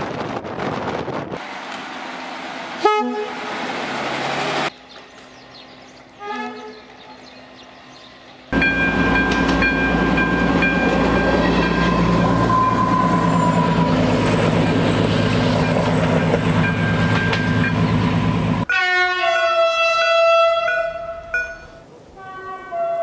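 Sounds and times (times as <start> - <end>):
wheels rumbling on rail: 0.0 - 23.0
diesel railcar engine running: 0.6 - 18.7
train horn blasts: 2.8 - 3.5, 6.2 - 6.9, 18.7 - 21.6, 22.2 - 23.0.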